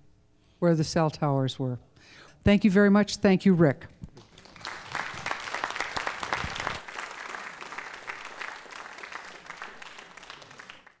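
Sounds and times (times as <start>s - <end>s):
audience applauding: 4.2s - 11.0s.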